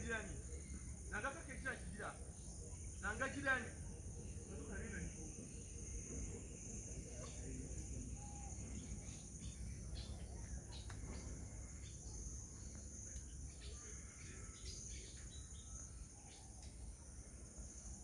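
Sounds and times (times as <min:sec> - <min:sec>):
insect chorus: 0:00.0 - 0:18.0
bird chirps: 0:07.1 - 0:16.9.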